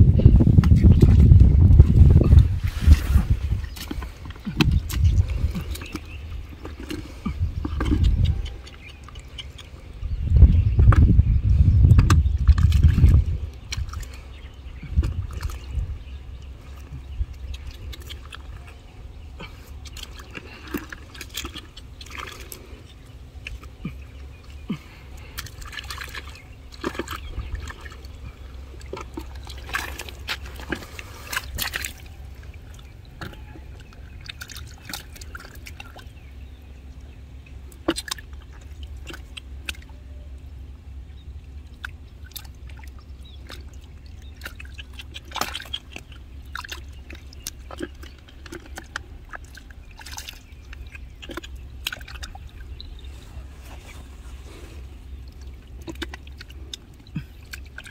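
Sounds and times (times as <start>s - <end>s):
water dripping: 3.6s - 11.1s, 14.8s - 53.1s, 55.0s - 57.9s
hands splashing in muddy puddle: 19.4s - 36.2s, 41.8s - 57.9s.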